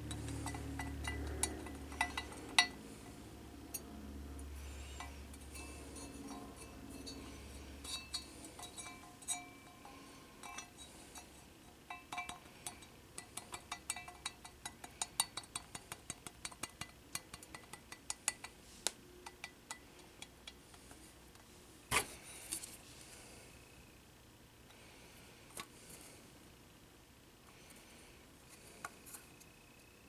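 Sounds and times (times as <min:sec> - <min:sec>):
small metallic clicks and clinks: 0:00.0 - 0:03.9, 0:04.9 - 0:18.6.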